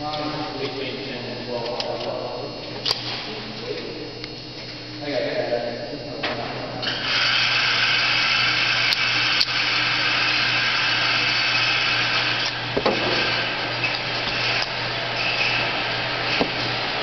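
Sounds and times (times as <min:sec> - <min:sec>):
electric motor whirring: 0:06.8 - 0:17.0.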